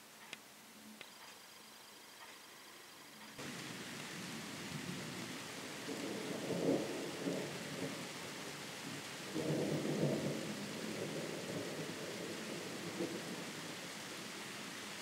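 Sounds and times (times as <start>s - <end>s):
rain hiss: 0.0s - 15.0s
distant thunder rumbling: 3.4s - 13.8s.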